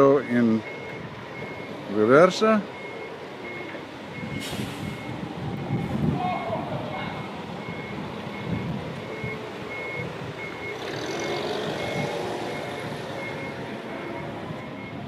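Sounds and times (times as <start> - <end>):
forklift back-up alarm beeps: 0.0 - 15.0
forklift engine running: 7.2 - 15.0.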